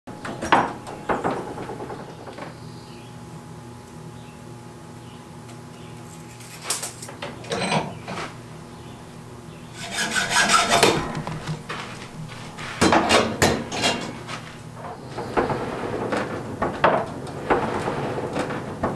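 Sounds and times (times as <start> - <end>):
hand file rasping on iron: 9.8 - 12.9.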